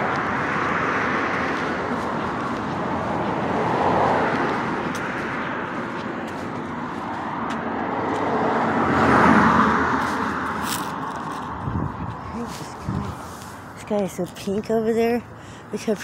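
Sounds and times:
car passing: 0.0 - 16.0
traffic hiss: 12.4 - 14.0.

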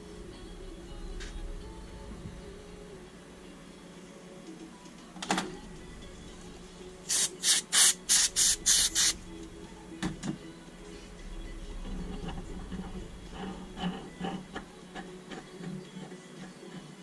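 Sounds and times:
aerosol spray can hissing: 7.0 - 9.2.

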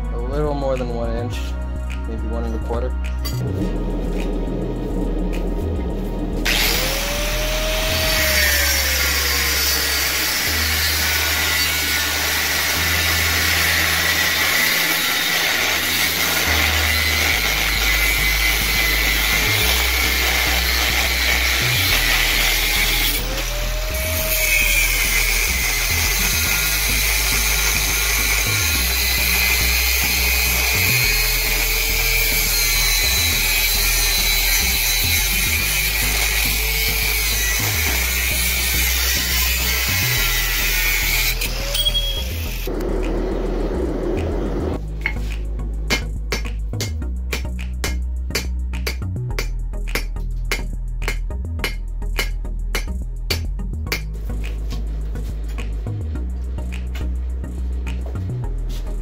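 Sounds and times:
angle grinder cutting steel: 6.4 - 44.2.

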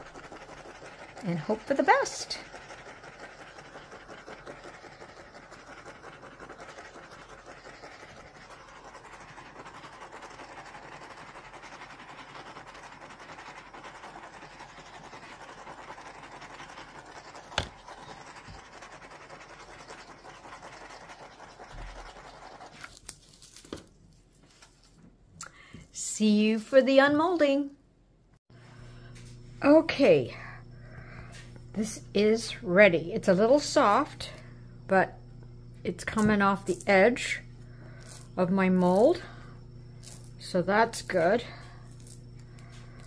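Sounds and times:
torch flame hissing: 0.0 - 22.9.

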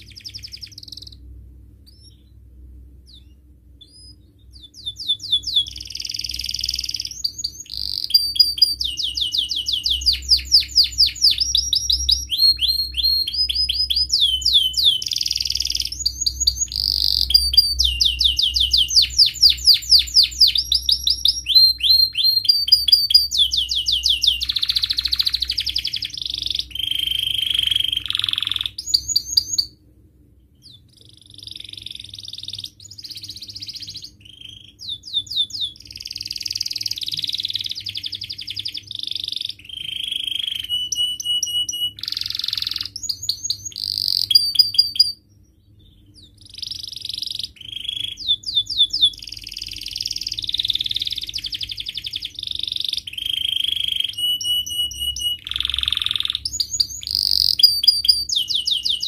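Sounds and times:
canary singing: 0.0 - 29.8, 30.4 - 59.0.

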